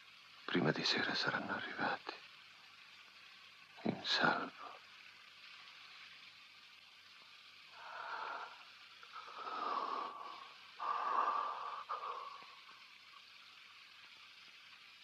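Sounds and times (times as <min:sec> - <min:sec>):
faint hiss: 0:00.0 - 0:15.0
person breathing heavily: 0:07.8 - 0:12.9.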